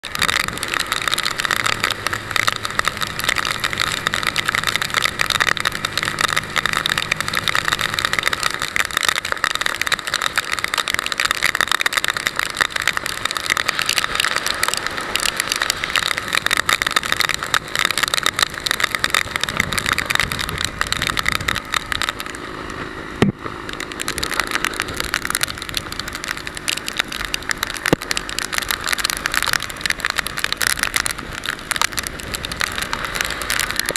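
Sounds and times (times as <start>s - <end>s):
wet road spray: 0.0s - 33.9s
wind buffeting microphone: 16.1s - 22.2s.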